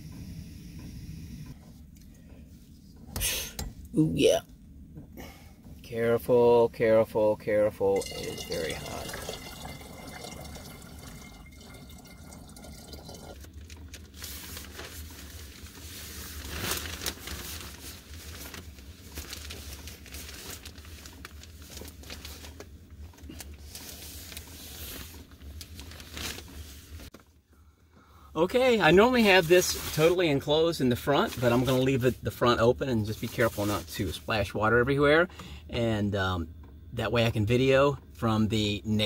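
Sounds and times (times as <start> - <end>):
hot water pouring into tank: 7.9 - 14.1
rustling: 8.3 - 27.3.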